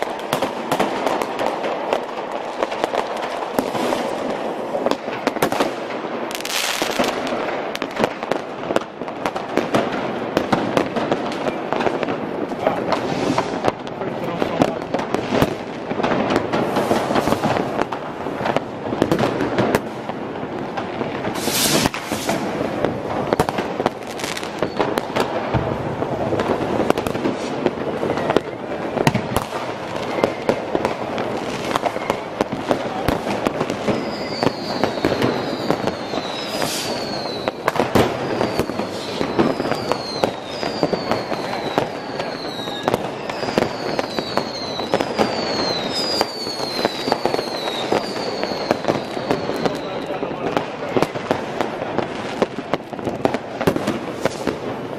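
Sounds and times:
fireworks and firecrackers banging: 0:00.0 - 0:54.9
short falling whistles: 0:34.0 - 0:37.5.

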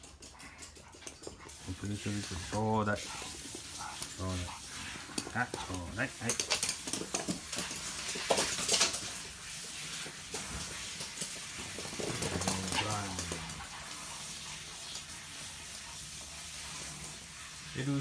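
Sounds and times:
dog claws clicking on floor: 0:00.0 - 0:14.1.

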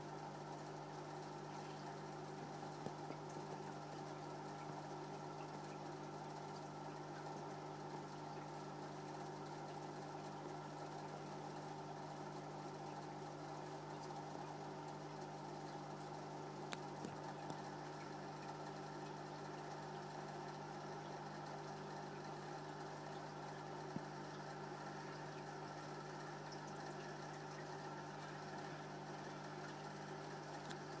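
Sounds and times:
aquarium equipment humming: 0:00.0 - 0:31.0.

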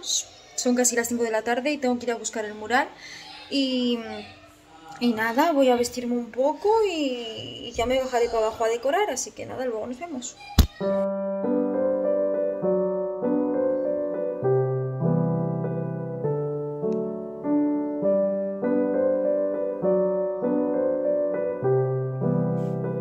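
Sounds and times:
keyboard playing slow melody: 0:10.8 - 0:23.0.

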